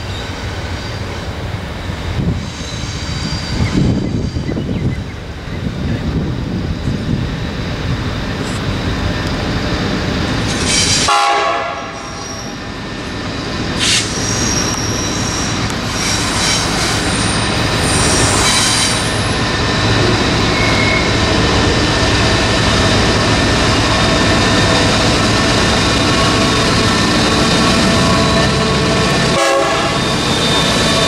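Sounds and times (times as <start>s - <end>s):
train horn blast: 11.0s - 12.2s, 27.8s - 30.2s
wheel squeal: 13.4s - 19.3s, 20.4s - 21.3s, 29.8s - 31.0s.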